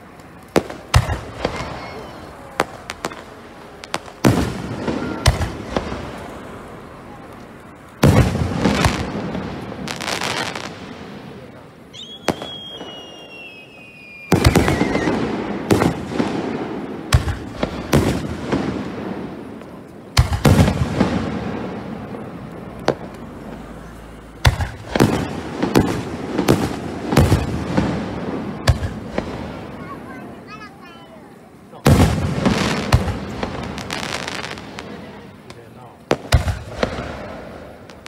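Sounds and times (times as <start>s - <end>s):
fireworks bangs: 0.0s - 38.0s
falling firework whistle: 3.9s - 6.2s, 11.9s - 18.3s, 22.9s - 29.9s.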